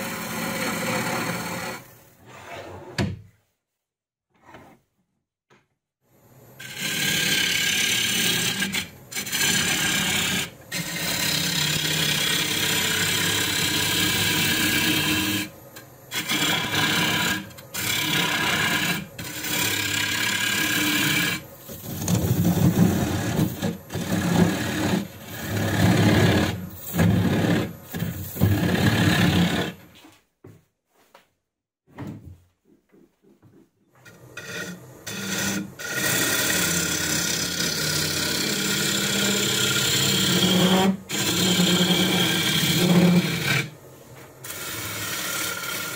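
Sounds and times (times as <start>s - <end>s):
gouge scraping wood on lathe: 0.0s - 1.9s, 6.6s - 29.8s, 34.0s - 43.7s, 44.4s - 45.9s.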